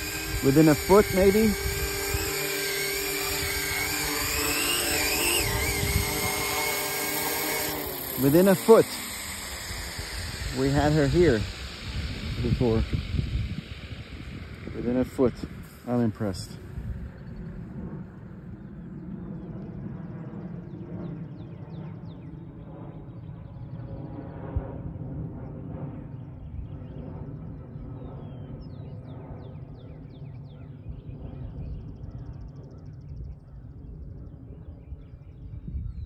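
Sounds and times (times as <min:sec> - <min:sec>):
helicopter rotor winding down: 0:00.0 - 0:21.4.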